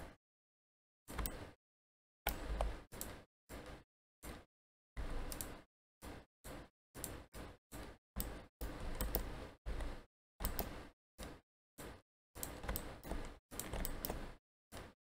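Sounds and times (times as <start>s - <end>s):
computer mouse clicks: 1.1s - 1.5s, 2.3s - 4.4s, 5.2s - 5.6s, 7.8s - 14.9s
keyboard key presses: 12.4s - 14.9s.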